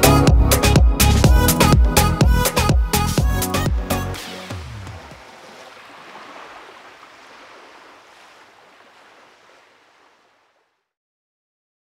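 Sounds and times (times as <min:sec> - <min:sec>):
ocean surf washing on beach: 0:04.2 - 0:10.7.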